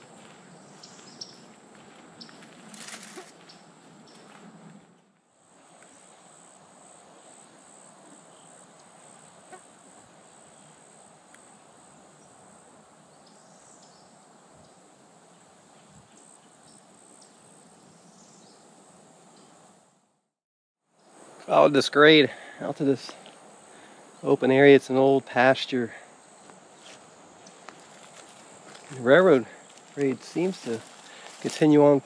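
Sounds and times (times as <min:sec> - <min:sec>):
insects trilling: 0:00.0 - 0:04.4, 0:05.3 - 0:19.8, 0:20.9 - 0:32.0
soft background hiss: 0:21.0 - 0:32.0.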